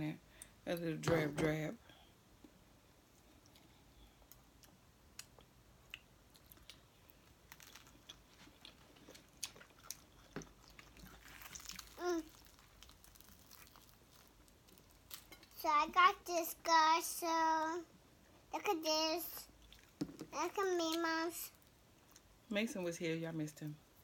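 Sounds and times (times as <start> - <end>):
chewing and eating: 3.2 - 15.6, 19.4 - 20.0.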